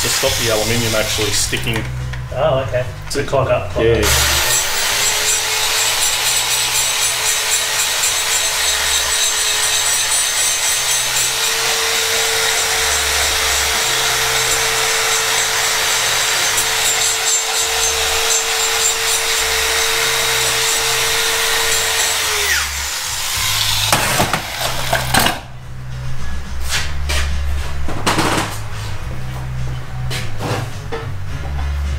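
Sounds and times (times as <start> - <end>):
die grinder whining and grinding: 0.0 - 1.9, 4.0 - 25.4.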